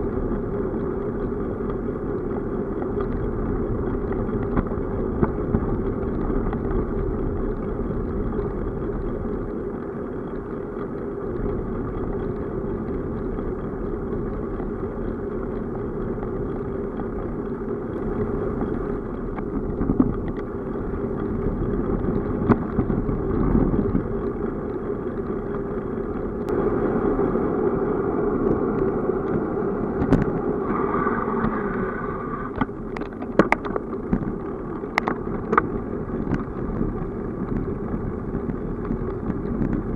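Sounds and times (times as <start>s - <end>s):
bicycle clicks and rattles: 0.0s - 27.3s, 32.5s - 39.9s
tyres rolling on asphalt: 0.0s - 39.9s
wind on microphone: 0.0s - 39.9s.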